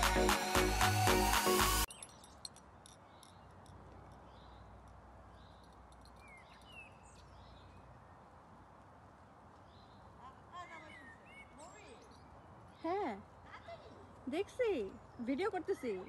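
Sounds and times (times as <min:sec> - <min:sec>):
electronic music with steady beat: 0:00.0 - 0:01.9
small birds chirping: 0:01.9 - 0:16.0.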